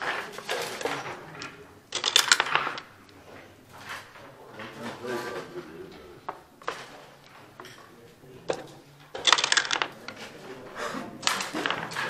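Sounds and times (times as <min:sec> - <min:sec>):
dice rattling: 0:00.1 - 0:03.2, 0:08.5 - 0:10.3, 0:11.2 - 0:12.0
checkers clicking on board: 0:00.4 - 0:03.2, 0:08.5 - 0:10.3, 0:11.2 - 0:12.0.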